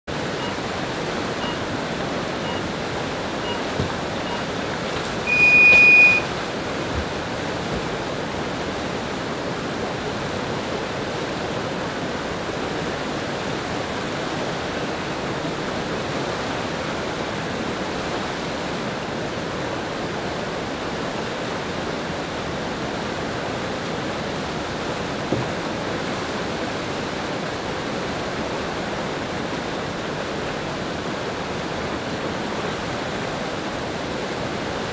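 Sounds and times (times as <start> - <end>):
whitewater rushing through channel: 0.1 - 34.9
electronic countdown beeps: 0.4 - 0.6, 1.4 - 1.7, 2.4 - 2.7, 3.4 - 4.5, 5.3 - 6.3.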